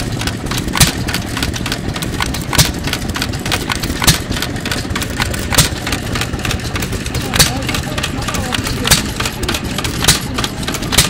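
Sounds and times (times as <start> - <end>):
mechanical clicking: 0.0 - 11.0.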